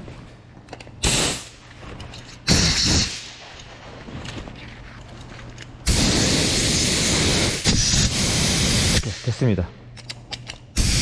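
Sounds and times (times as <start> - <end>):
compressed air blasts: 1.0 - 1.6, 2.5 - 3.4, 5.8 - 9.4, 10.8 - 11.0
air rushing through nozzle: 5.9 - 9.1.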